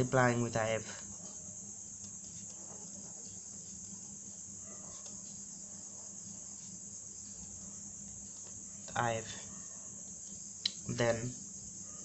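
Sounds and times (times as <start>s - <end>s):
pen scratching on paper: 2.0s - 7.7s.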